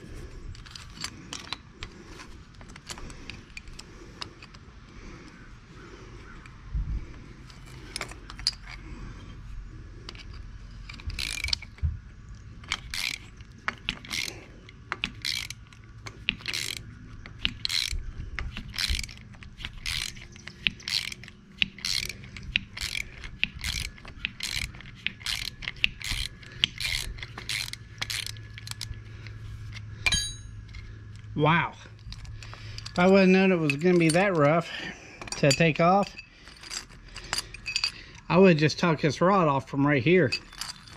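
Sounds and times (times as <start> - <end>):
ratchet wrench clicking: 10.0 - 11.8, 12.6 - 30.8.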